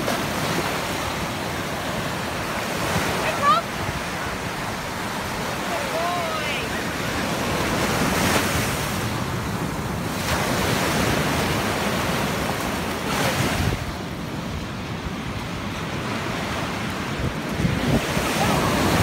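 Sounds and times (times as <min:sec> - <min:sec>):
ocean surf on sandy beach: 0:00.0 - 0:19.0
wind rumbling on microphone: 0:07.1 - 0:19.0.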